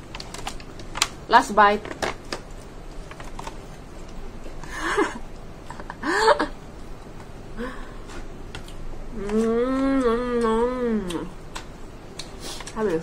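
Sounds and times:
woman's wordless vocal sounds while eating: 9.1 - 11.4.

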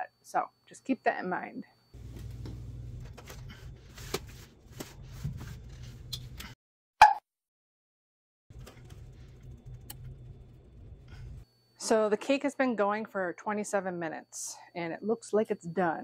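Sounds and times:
oven humming: 2.0 - 6.6, 8.5 - 11.5.

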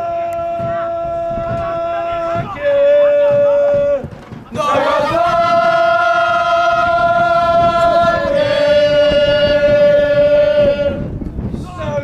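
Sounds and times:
football supporters chanting: 0.0 - 11.1.

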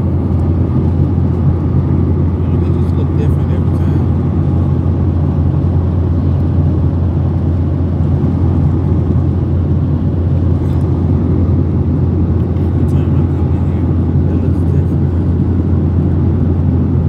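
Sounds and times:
jet engine drone: 0.0 - 17.0
rush of airflow: 3.8 - 17.0.

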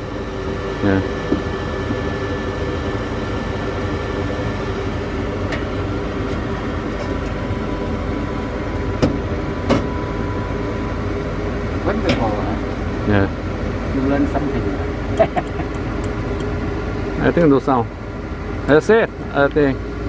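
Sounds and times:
gas furnace burner hum: 0.0 - 20.0.

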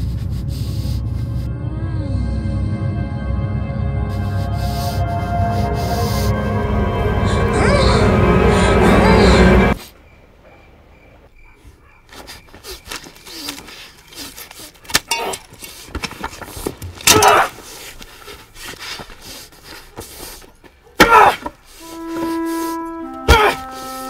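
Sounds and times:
man's strained cry: 23.2 - 23.7.

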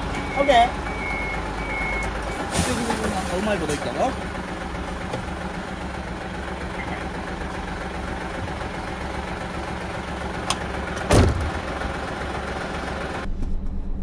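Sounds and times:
diesel engine idling: 0.0 - 14.0
loud clunk: 11.0 - 11.6.

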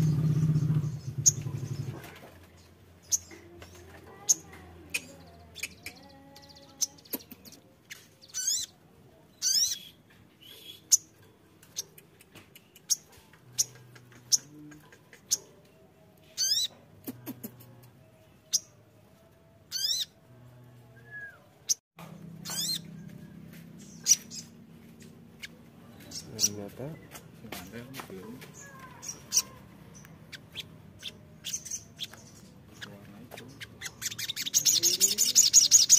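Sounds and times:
buzzy bird trills: 0.0 - 2.0, 4.2 - 8.7, 19.7 - 20.2, 22.4 - 27.2, 28.6 - 32.9, 33.5 - 35.9
sunbird chirping: 0.0 - 2.0, 22.4 - 27.2, 28.5 - 35.9.

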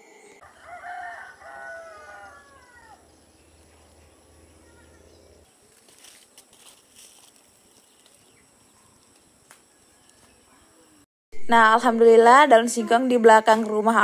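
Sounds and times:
rooster crowing: 0.4 - 3.2
faint rustles or clicks: 5.6 - 8.4.

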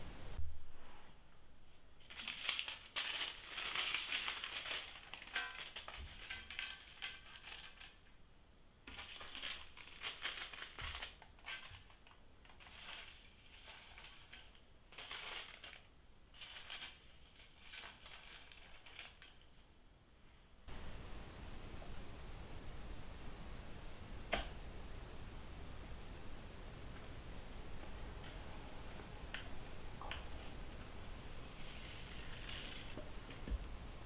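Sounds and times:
baking paper crinkling: 2.0 - 8.1, 8.9 - 19.7, 28.2 - 33.0.

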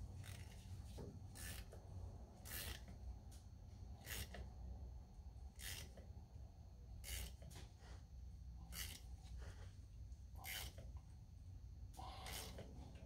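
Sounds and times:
ratchet wrench ratcheting: 0.1 - 0.7, 1.3 - 1.8, 2.4 - 3.0, 3.9 - 4.5, 5.5 - 6.1, 7.0 - 7.6, 8.7 - 9.2, 10.4 - 11.0, 12.2 - 12.7.

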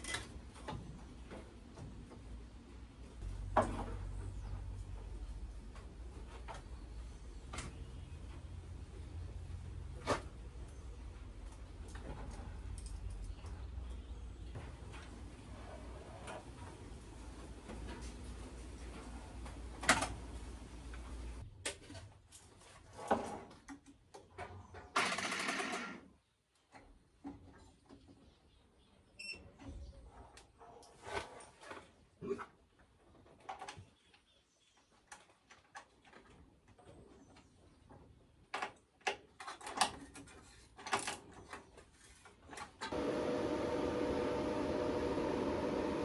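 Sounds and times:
low hum: 42.9 - 46.0.

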